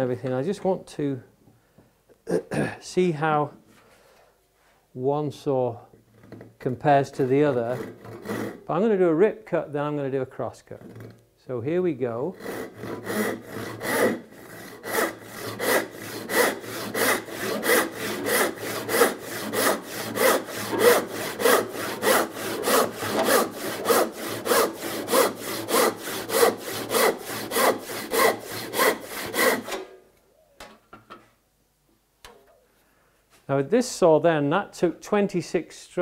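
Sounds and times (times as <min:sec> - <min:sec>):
handsaw cutting wood: 0:07.4 - 0:08.7, 0:12.3 - 0:29.9.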